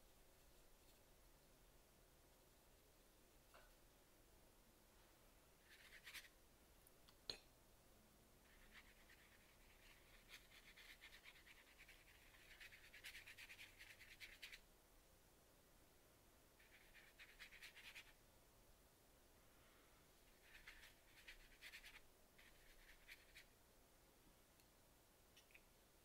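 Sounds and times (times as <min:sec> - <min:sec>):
brush scratching on paper: 0:05.6 - 0:06.3, 0:08.4 - 0:14.6, 0:16.6 - 0:18.2, 0:20.3 - 0:23.5.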